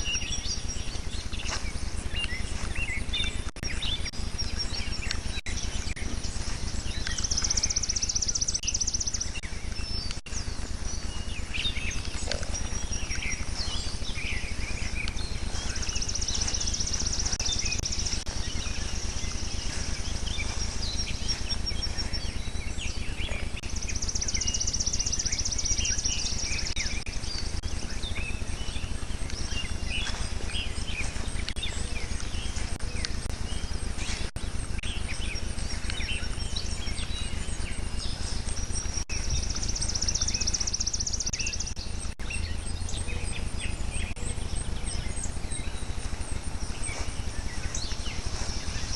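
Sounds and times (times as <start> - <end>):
birds chirping and calling: 0.0 - 48.9
high rapid bird trill: 0.0 - 48.9
steady low hum: 0.0 - 48.9.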